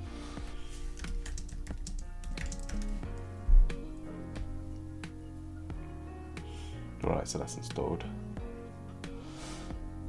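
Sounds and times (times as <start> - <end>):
background music with held notes: 0.0 - 10.0
computer keyboard typing: 1.0 - 3.2
low thump: 3.4 - 3.8.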